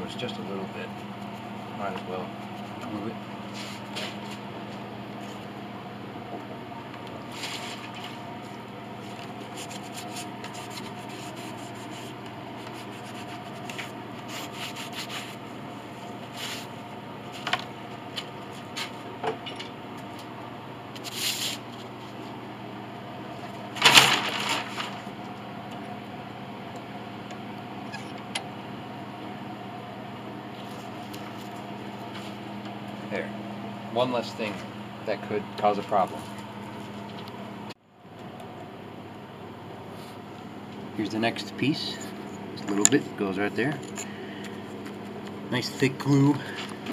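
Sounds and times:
steady low hum: 0:00.0 - 0:46.9.

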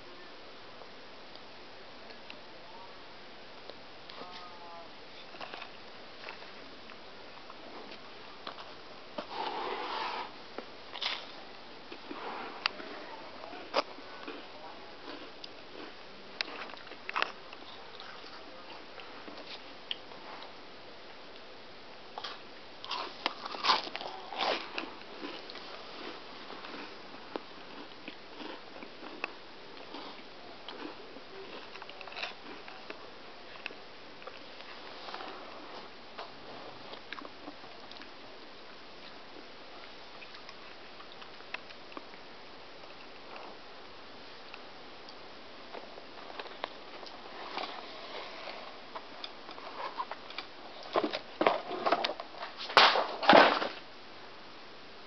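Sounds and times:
steady hiss: 0:00.0 - 0:31.4
person chewing crunchy food: 0:13.6 - 0:18.4, 0:22.2 - 0:35.4.

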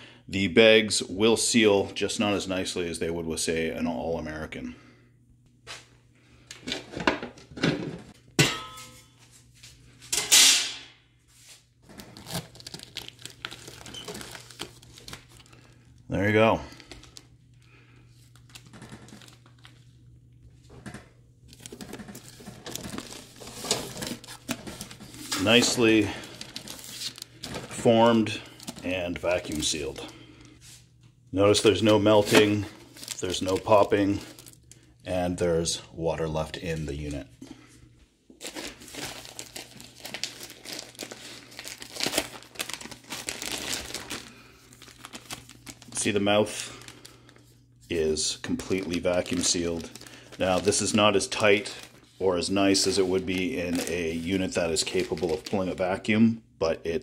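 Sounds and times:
plastic bags crinkling: 0:11.8 - 0:20.0, 0:21.4 - 0:30.5, 0:31.5 - 0:35.1, 0:38.3 - 0:56.2.

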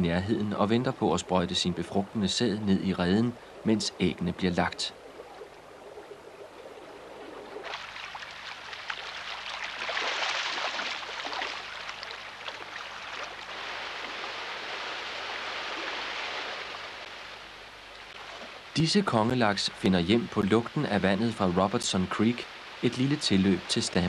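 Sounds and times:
river water rushing and splashing: 0:06.4 - 0:24.0.

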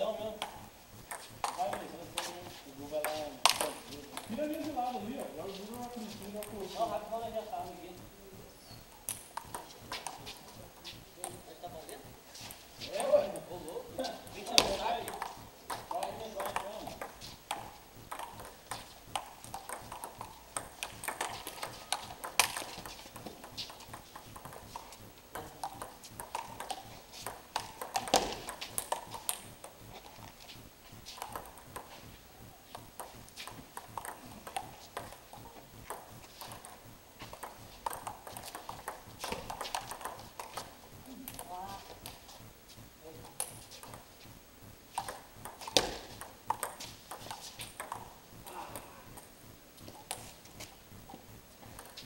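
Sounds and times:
ping-pong ball clicking off paddles: 0:00.0 - 0:08.0, 0:08.9 - 0:12.1, 0:12.9 - 0:42.2, 0:43.2 - 0:44.1, 0:44.9 - 0:52.0
ping-pong ball bouncing on table: 0:00.3 - 0:02.3, 0:03.0 - 0:04.4, 0:09.1 - 0:10.3, 0:11.2 - 0:12.0, 0:13.0 - 0:29.8, 0:31.2 - 0:32.0, 0:32.7 - 0:42.2, 0:43.3 - 0:44.1, 0:45.0 - 0:49.3, 0:51.7 - 0:52.0.

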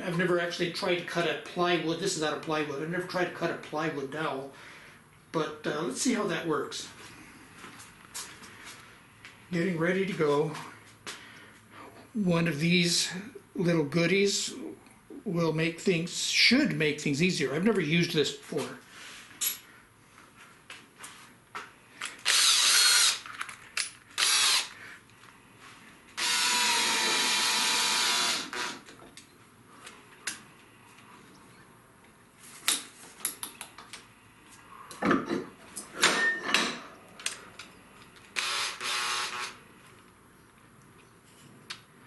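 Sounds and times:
cordless drill motor bursts: 0:22.2 - 0:23.2, 0:24.2 - 0:24.8, 0:26.2 - 0:28.8, 0:38.4 - 0:39.6.

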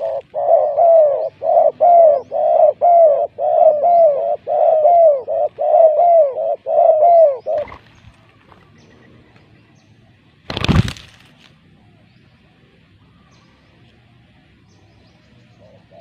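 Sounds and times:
dove cooing: 0:00.0 - 0:07.9, 0:15.6 - 0:16.0
wings fluttering: 0:10.4 - 0:11.5.

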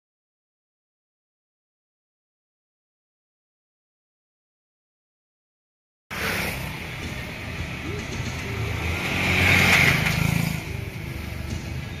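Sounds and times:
vehicle passing close: 0:06.1 - 0:11.7
street traffic: 0:06.1 - 0:12.0.

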